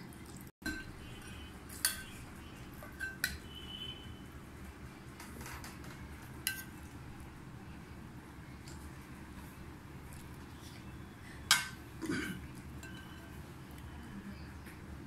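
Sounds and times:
metal spoon clinking on ceramic: 12.8 - 13.2.

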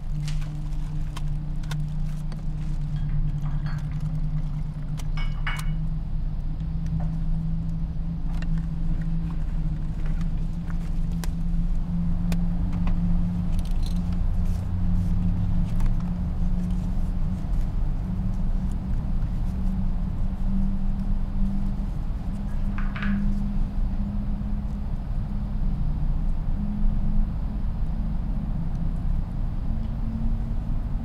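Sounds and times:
steady low hum: 0.0 - 31.0
objects clicking and rattling: 0.1 - 5.8.

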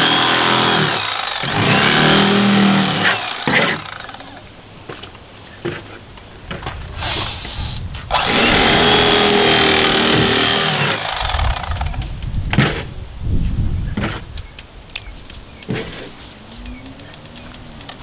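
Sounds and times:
electric knife motor hum: 0.0 - 4.4, 7.0 - 12.1.

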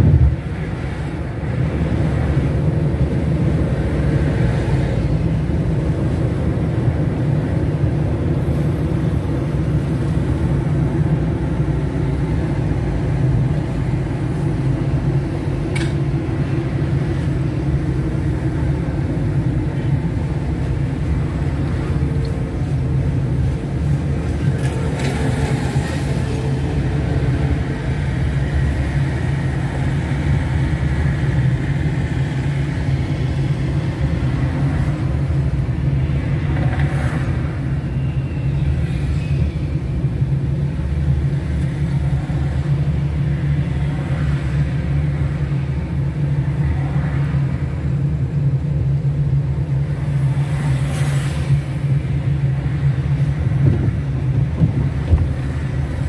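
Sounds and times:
car engine and road noise: 0.0 - 56.0.

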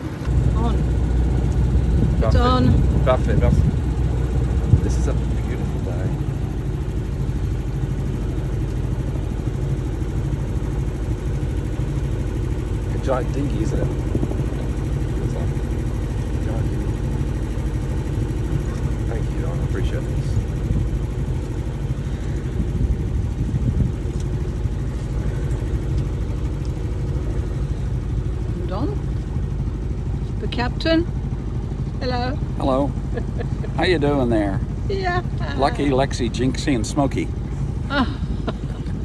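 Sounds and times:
boat engine idling: 0.0 - 39.0.

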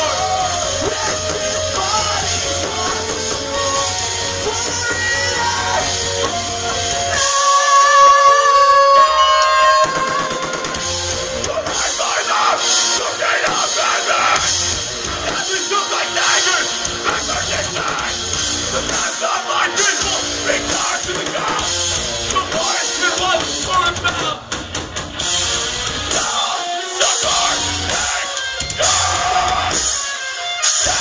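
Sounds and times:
distorted electric guitars: 0.0 - 31.0
drum kit: 0.0 - 31.0.

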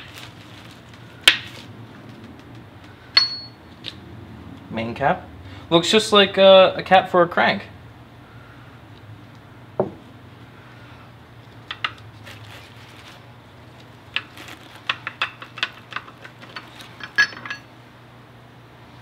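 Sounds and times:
metallic clinks of tools: 3.2 - 3.6, 15.9 - 17.7.

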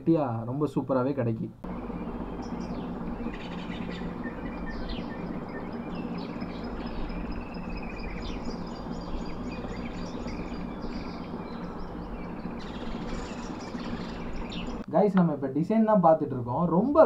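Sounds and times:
steady low hum: 0.0 - 17.0
birds chirping and calling: 1.7 - 14.8.

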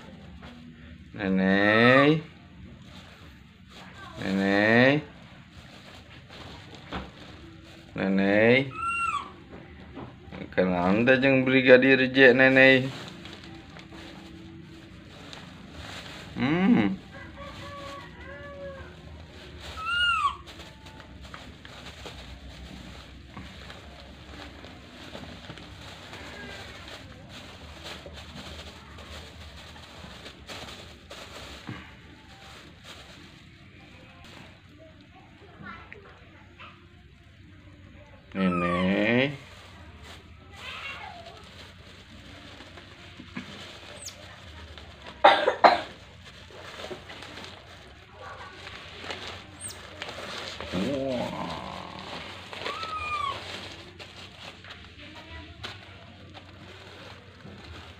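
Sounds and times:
plastic bags crinkling: 2.1 - 9.5, 10.8 - 35.1, 38.7 - 57.9
monkey call: 8.7 - 9.3, 19.8 - 20.4, 52.7 - 53.4
loud coughs: 45.2 - 46.0.

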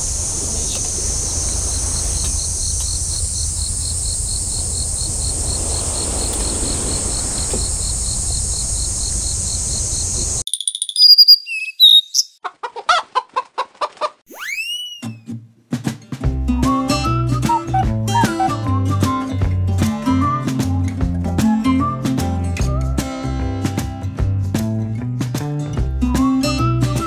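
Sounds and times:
wind rumble on microphone: 0.0 - 10.4
insects trilling: 0.0 - 12.3.

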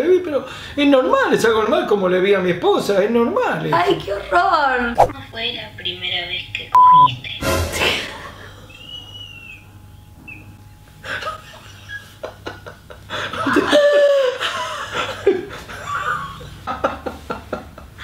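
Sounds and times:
man and woman laughing: 11.0 - 18.0.

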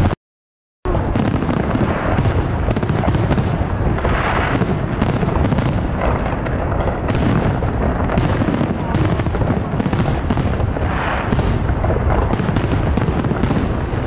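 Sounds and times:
fireworks bangs and crackling: 0.9 - 14.0.

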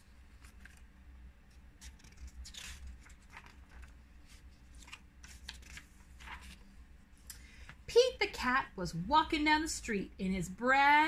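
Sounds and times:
low steady hum: 0.0 - 11.0
paper pages rustling: 0.2 - 6.8.

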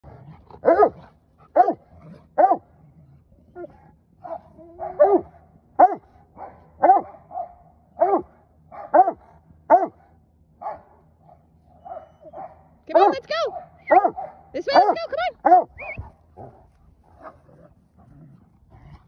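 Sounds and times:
dog barking: 0.6 - 2.7, 4.2 - 10.0, 10.6 - 10.9, 11.8 - 16.5
dog yelping: 11.8 - 16.1.

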